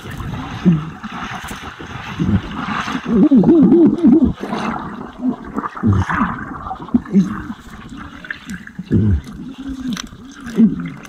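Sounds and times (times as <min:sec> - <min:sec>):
muffled underwater gurgling: 0:00.0 - 0:11.0.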